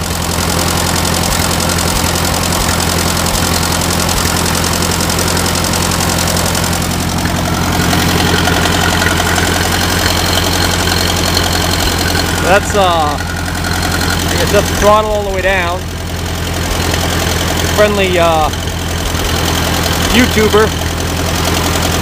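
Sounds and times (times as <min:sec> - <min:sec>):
tractor engine idling: 0:00.0 - 0:22.0.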